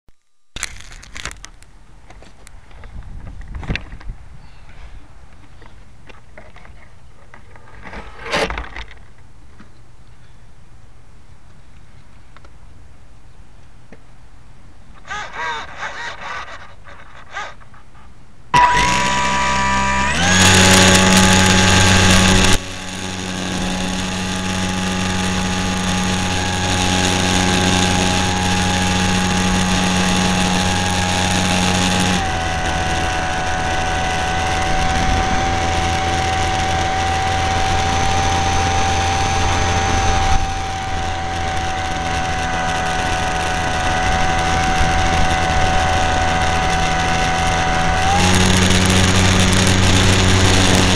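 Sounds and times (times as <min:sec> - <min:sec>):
model airplane motor whine: 0:15.0 - 0:17.8, 0:18.5 - 0:50.9.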